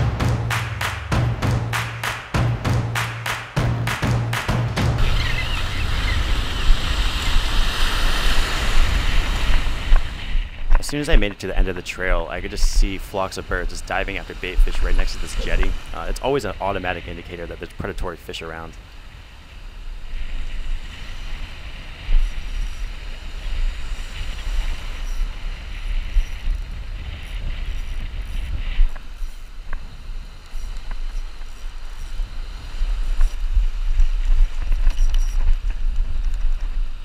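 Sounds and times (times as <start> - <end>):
surf breaking on beach: 4.4 - 30.4
wind buffeting microphone: 5.0 - 17.6, 18.8 - 37.0.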